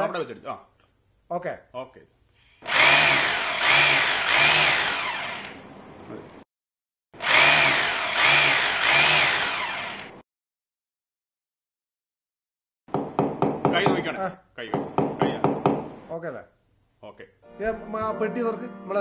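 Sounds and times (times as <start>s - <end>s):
electric drill boring into wall: 2.6s - 5.6s, 7.2s - 10.2s.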